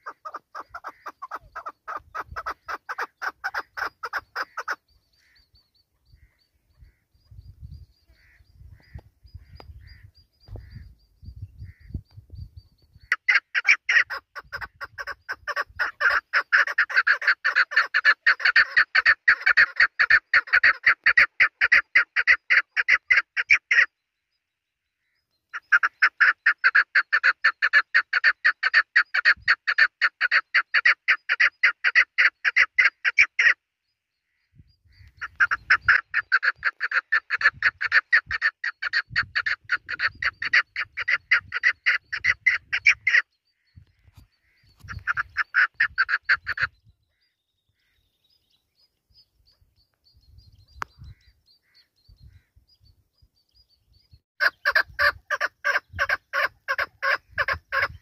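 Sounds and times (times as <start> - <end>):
partridge calling chuck notes: 0.0 - 10.9, 35.0 - 46.8.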